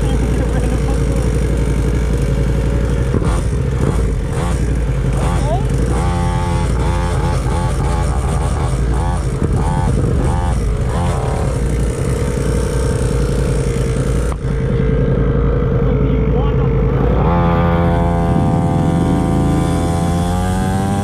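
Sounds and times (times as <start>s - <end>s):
dirt bike engine idling: 0.0s - 21.0s
motorcycle idling: 0.0s - 21.0s.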